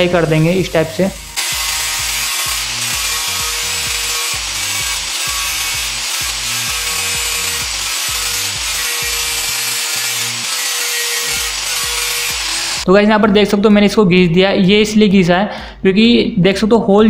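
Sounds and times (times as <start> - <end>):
angle grinder grinding metal: 0.0 - 12.9.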